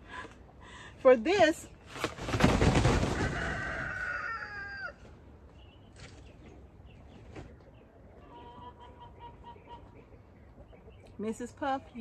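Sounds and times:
rooster crowing: 0:03.1 - 0:05.0.

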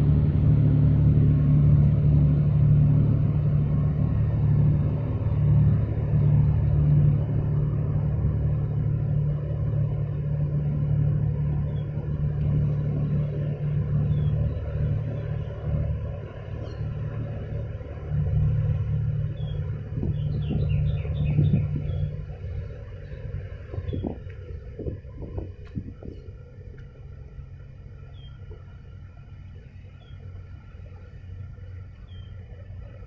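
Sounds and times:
ship engines low rumble: 0:00.0 - 0:33.0
faint bird chirps: 0:28.1 - 0:28.4, 0:32.0 - 0:32.4.

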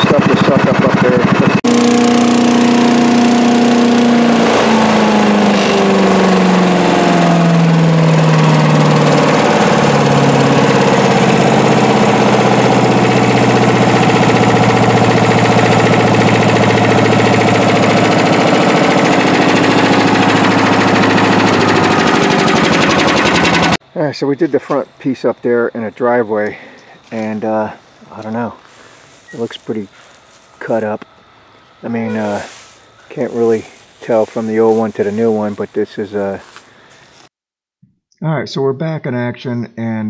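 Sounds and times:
small gas engine running: 0:00.0 - 0:23.8, 0:31.8 - 0:37.3.

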